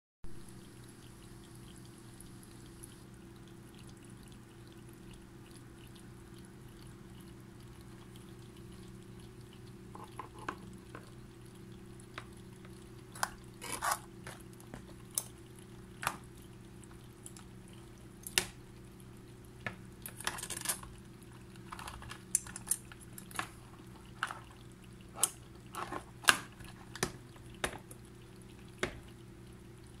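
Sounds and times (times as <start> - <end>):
crabs clicking against plastic tub: 21.6 - 28.0.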